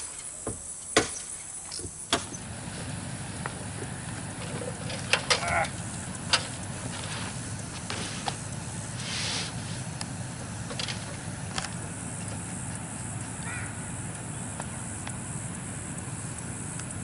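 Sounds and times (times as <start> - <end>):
outdoor background hum: 0.0 - 17.0
roofing material rustling: 1.9 - 12.7
sharp clicks and knocks: 10.0 - 12.4.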